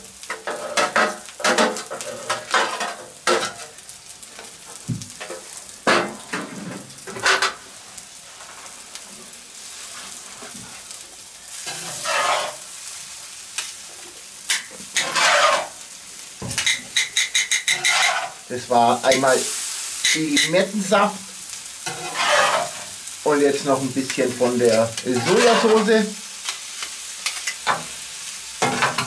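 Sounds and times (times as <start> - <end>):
food sizzling in a pan: 0.0 - 29.0
tongs scraping a pan: 0.2 - 3.8, 7.1 - 7.6, 11.5 - 12.7, 14.5 - 15.8, 16.5 - 21.0, 21.8 - 27.8.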